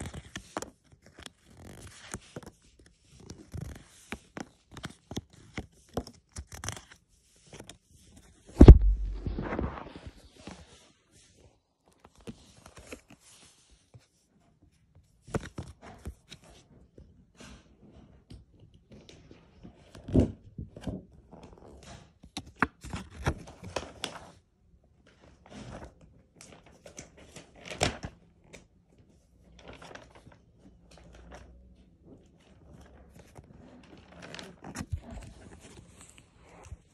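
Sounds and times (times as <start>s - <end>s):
soft thumps: 8.6s - 10.1s
paper flicks: 8.6s - 10.2s.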